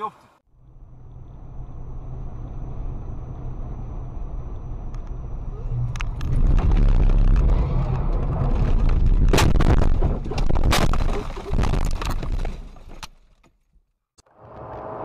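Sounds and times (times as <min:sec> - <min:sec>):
car engine and road rumble: 0:00.0 - 0:15.0
car crash impacts and crunching: 0:06.2 - 0:13.6.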